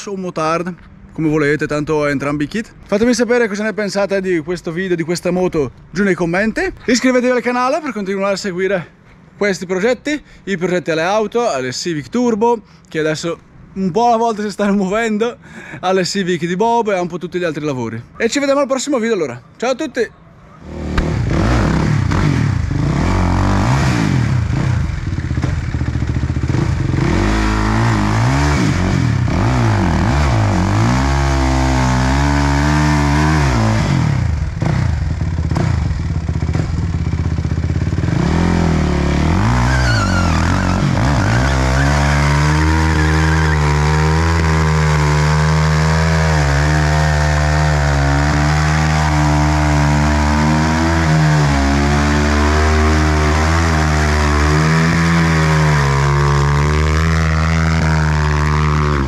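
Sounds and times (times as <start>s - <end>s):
motorcycle engine revving: 20.6s - 59.0s.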